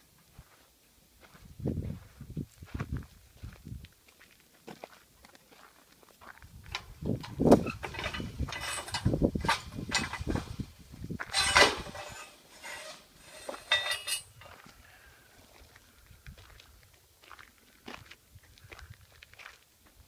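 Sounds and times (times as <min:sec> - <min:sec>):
footsteps on sandy dirt: 0:00.2 - 0:07.6, 0:08.2 - 0:20.0
light clinks: 0:11.3 - 0:14.5.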